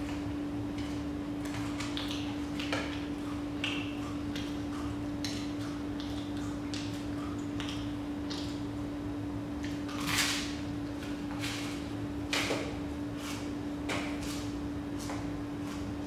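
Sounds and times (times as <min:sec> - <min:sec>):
person eating noisily: 0:00.0 - 0:09.0
steady low hum: 0:00.0 - 0:16.0.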